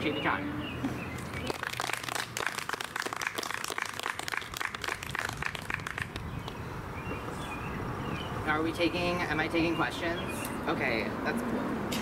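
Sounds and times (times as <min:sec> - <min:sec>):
small group clapping: 0:01.2 - 0:06.6.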